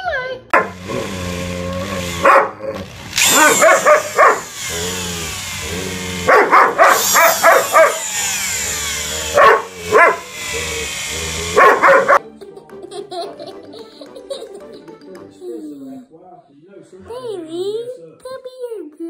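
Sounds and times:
dog barking: 0.5s - 0.8s, 2.2s - 2.6s, 3.3s - 4.5s, 6.3s - 8.0s, 9.3s - 10.3s, 11.5s - 12.2s.

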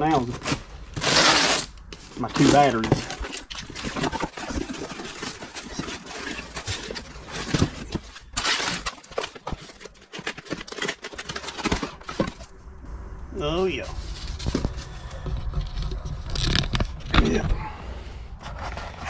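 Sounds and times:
cardboard box rustling and crackling: 0.0s - 12.6s, 18.4s - 19.0s.

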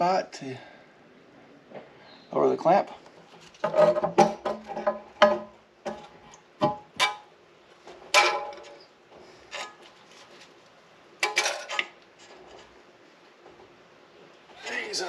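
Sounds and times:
metal knocks and clanks: 3.6s - 7.3s, 7.9s - 8.9s.

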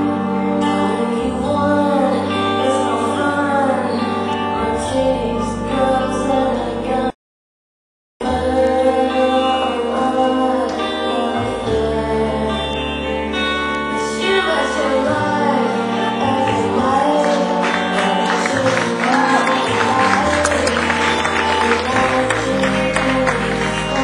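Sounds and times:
dance song with sung vocals: 14.1s - 24.0s.

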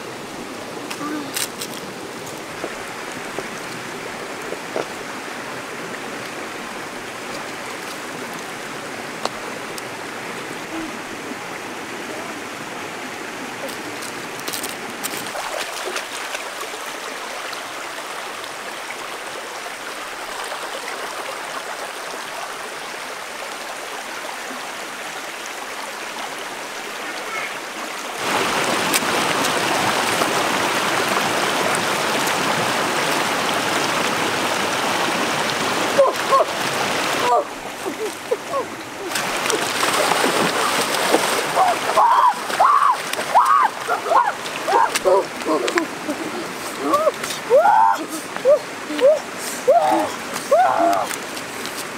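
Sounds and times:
stream running over stones: 0.0s - 51.9s.

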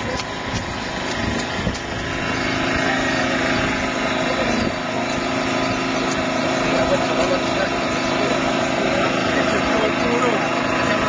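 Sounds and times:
small engine running steadily: 0.0s - 11.0s.

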